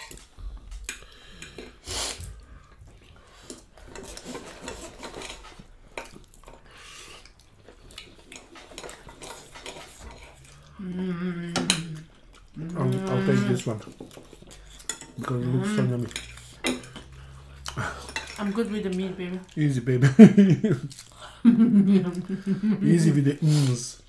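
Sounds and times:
cutlery scraping on a plate: 0:03.8 - 0:06.6, 0:08.0 - 0:10.6, 0:13.2 - 0:18.4.

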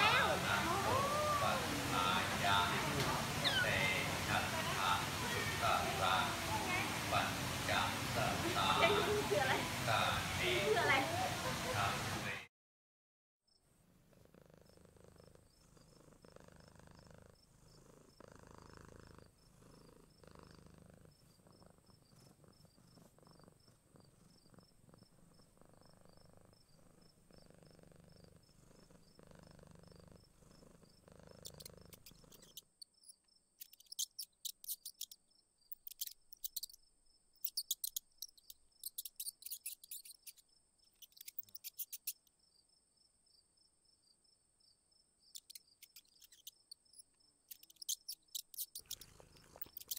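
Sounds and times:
cat purring: 0:00.0 - 0:11.6, 0:13.7 - 0:32.8, 0:37.4 - 0:42.2, 0:45.4 - 0:49.9
insects chirping: 0:00.0 - 0:11.9, 0:14.6 - 0:49.9
faint steady high background: 0:21.2 - 0:49.9.

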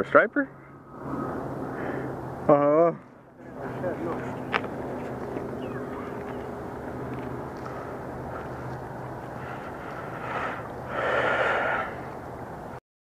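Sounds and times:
low even hum: 0:00.0 - 0:12.8
loud breath close to microphone: 0:01.0 - 0:02.2, 0:09.3 - 0:12.1.

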